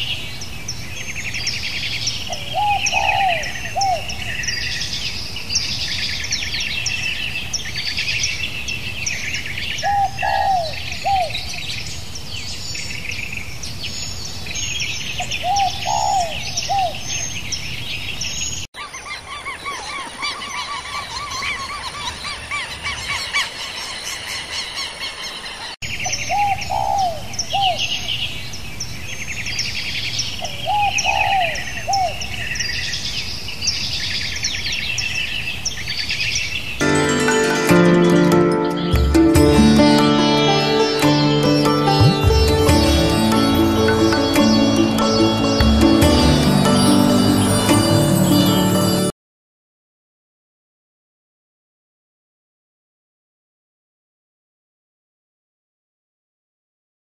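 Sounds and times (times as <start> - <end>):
small birds chirping and singing: 0.0 - 49.1.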